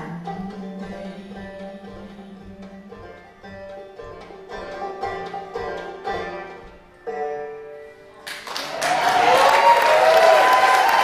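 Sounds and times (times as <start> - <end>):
banjo picked notes: 0.0 - 8.4.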